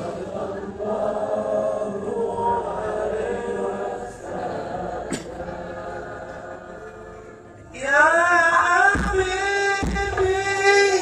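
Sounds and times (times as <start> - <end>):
crowd chanting devotional song: 0.0 - 11.0.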